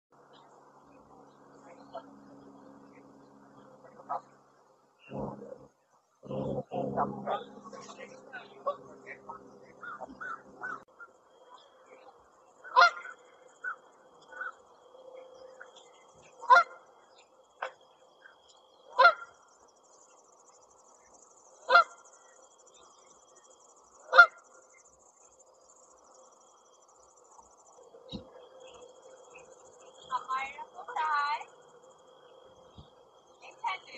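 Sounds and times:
geese honking: 0.3s - 4.4s, 5.0s - 19.4s, 21.6s - 23.0s, 24.0s - 24.8s, 27.4s - 33.9s
soft goose calls: 0.3s - 4.4s, 5.0s - 19.4s, 21.6s - 23.0s, 24.0s - 24.8s.

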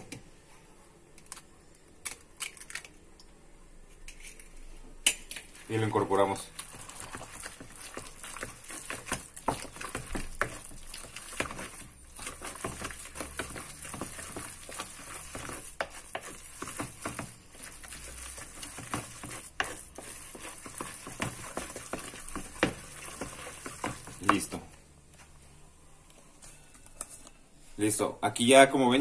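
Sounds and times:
wet scraping and squelching: 6.4s - 24.5s.

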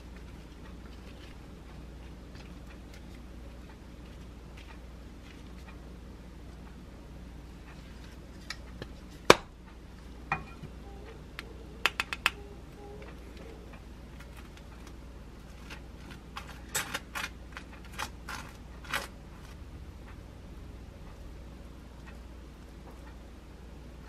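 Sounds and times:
utensil clicks and taps: 11.4s - 12.4s.

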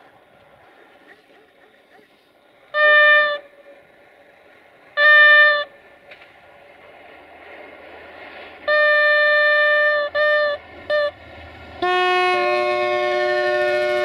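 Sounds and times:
train running noise: 0.0s - 14.0s
train horn blasts: 2.7s - 3.6s, 5.0s - 5.8s, 8.7s - 11.2s, 11.8s - 14.0s.

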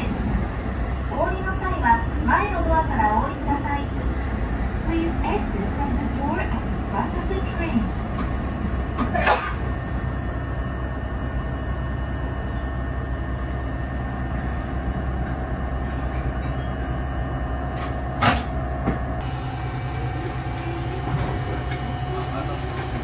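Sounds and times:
railcar running rumble: 0.0s - 23.0s
wheel squeal: 9.0s - 12.6s, 15.4s - 17.5s.

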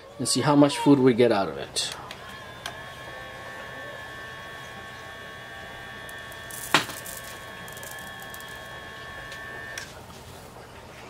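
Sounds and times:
small electric motor whining: 0.8s - 10.0s
pellets dropping onto table: 6.5s - 8.5s.

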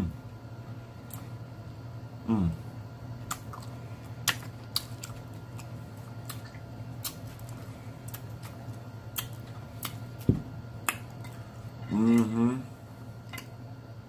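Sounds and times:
mouth chewing: 3.2s - 11.4s.

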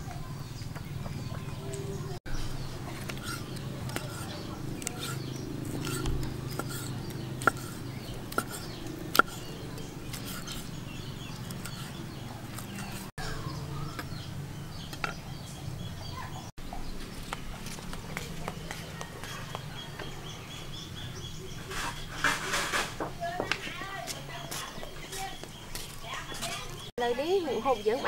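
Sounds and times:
knife striking wooden chopping block: 5.8s - 9.5s.

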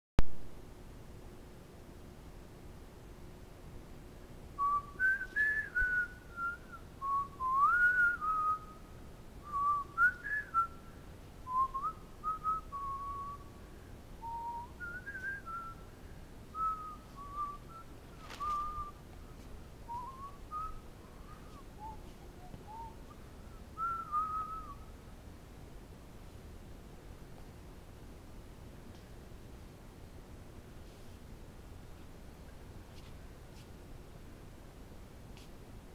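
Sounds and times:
person whistling a tune: 4.6s - 8.8s, 9.4s - 10.8s, 11.5s - 13.4s, 14.2s - 15.8s, 16.6s - 19.0s, 19.9s - 24.8s.

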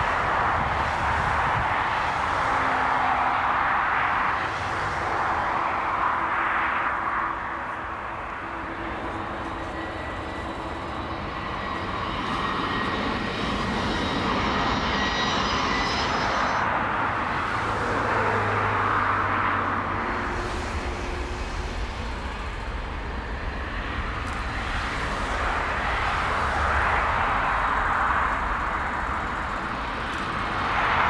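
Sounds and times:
jet engines running: 0.0s - 31.0s
faint high whine: 7.3s - 17.3s.

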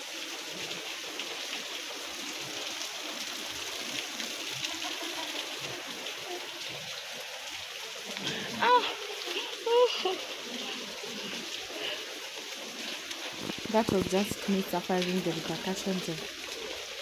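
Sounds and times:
water trickling: 0.0s - 17.0s
faint steps on wet trail: 11.4s - 16.6s.

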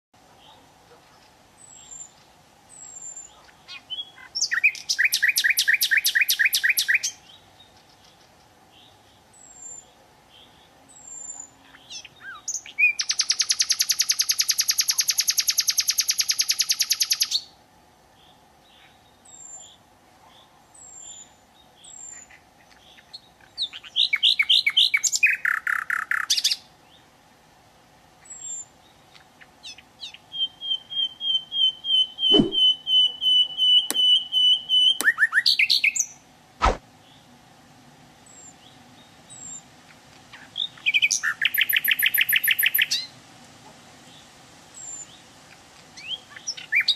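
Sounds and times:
faint steady hum: 0.2s - 46.9s
songbird singing trills: 1.6s - 27.1s, 28.2s - 36.2s, 38.2s - 43.1s, 46.0s - 46.9s
short high bird chips: 32.3s - 32.7s.

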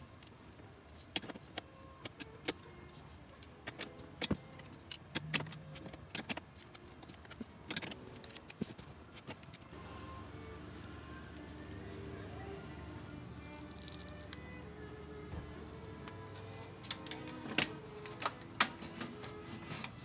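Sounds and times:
metal line clicking into plastic clips: 0.9s - 9.7s, 13.4s - 14.6s, 15.8s - 19.4s.

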